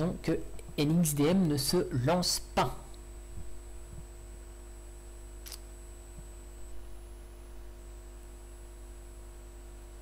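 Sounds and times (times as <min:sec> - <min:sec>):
low electrical hum: 0:00.0 - 0:10.0
sharp click: 0:05.4 - 0:05.7.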